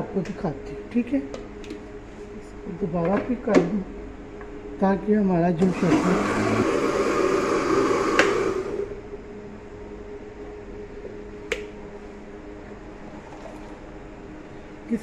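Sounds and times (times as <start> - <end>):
electric blender grinding: 5.6 - 9.0
blender switch click: 8.1 - 8.5.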